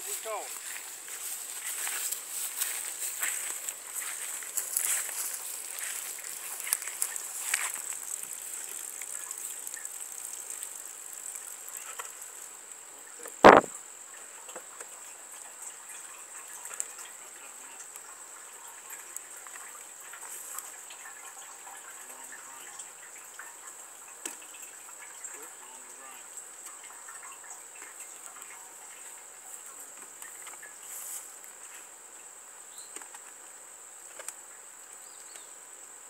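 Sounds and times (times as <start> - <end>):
water gushing from plastic jugs: 0.0 - 12.7
high insect drone: 0.0 - 36.0
loud thump: 13.4 - 13.7.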